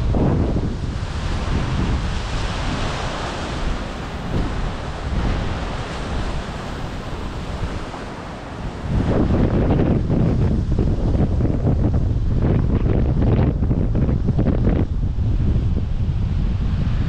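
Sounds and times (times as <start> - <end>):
waves breaking against rocks: 0.0 - 11.5
gusty wind buffeting microphone: 0.0 - 17.0.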